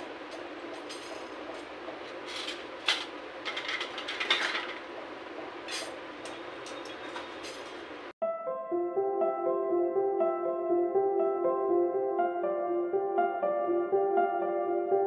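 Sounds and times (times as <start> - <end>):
steel utensils clinking and scraping: 0.0 - 4.9
music: 8.2 - 15.0.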